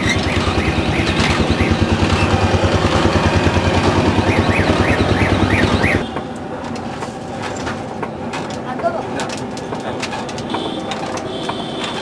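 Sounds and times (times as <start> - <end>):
forge blower pulsing hum: 0.0 - 6.5
blower squeaking: 0.0 - 6.8.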